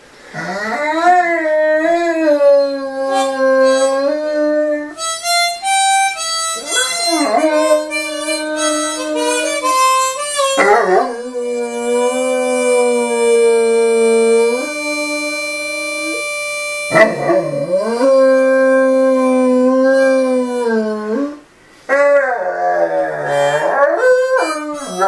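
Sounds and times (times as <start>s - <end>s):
puppy howling: 0.4s - 5.1s, 6.6s - 9.8s, 10.4s - 16.3s, 16.9s - 25.0s
harmonica held notes: 3.0s - 21.2s, 23.3s - 25.0s.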